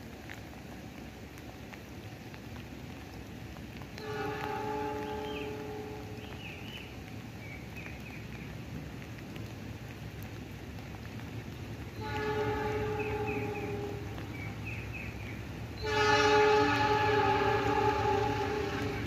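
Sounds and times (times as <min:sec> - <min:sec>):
locomotive horn blast: 0:04.0 - 0:06.2, 0:12.0 - 0:14.3, 0:15.8 - 0:19.0.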